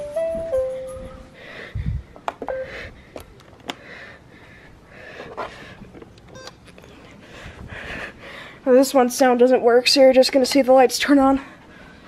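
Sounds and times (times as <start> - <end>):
short beeps: 2.5 - 2.8.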